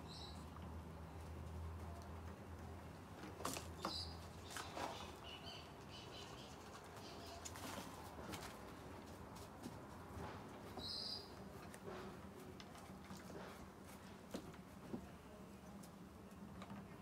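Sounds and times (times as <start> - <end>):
bird chirps: 10.8 - 11.3.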